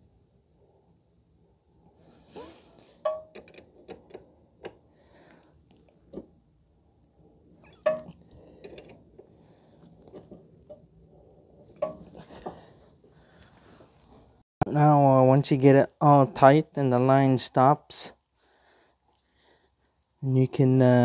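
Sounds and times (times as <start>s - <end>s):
ringing metal clank: 3.0s - 3.6s, 11.8s - 12.2s.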